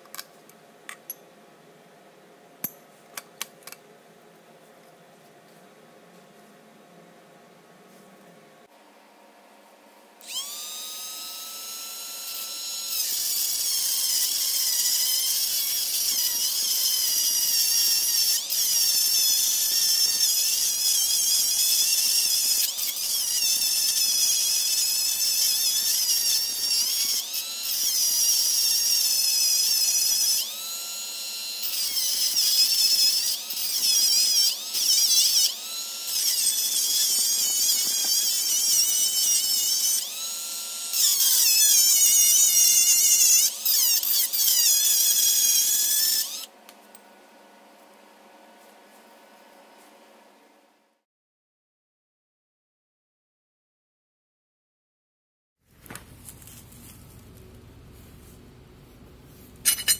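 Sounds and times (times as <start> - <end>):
power tool grinding steel: 10.2 - 46.5, 59.6 - 59.9.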